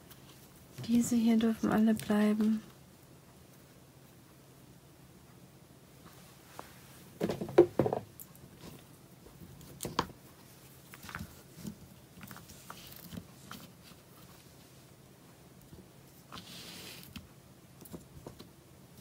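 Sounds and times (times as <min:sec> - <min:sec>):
tape rolls knocking and clattering: 0:07.2 - 0:08.1.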